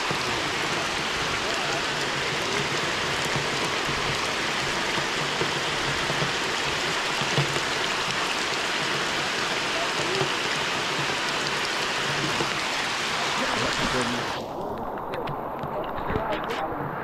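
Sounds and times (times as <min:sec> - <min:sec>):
heavy rain hissing: 0:00.0 - 0:17.0.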